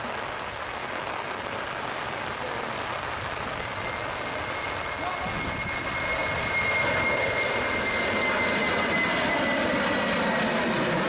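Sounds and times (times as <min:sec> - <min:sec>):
rain hiss: 0:00.0 - 0:08.0
jet engines: 0:00.0 - 0:11.0
high engine whine: 0:03.0 - 0:11.0.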